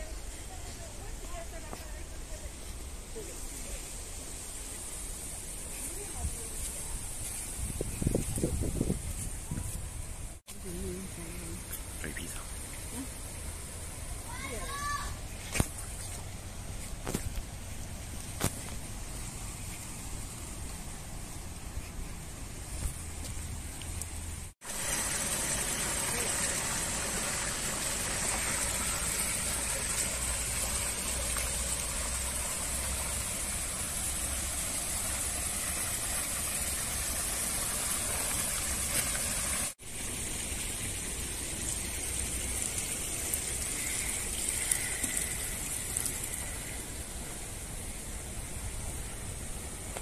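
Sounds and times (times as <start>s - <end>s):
water splashing into a pond: 11.8s - 50.0s.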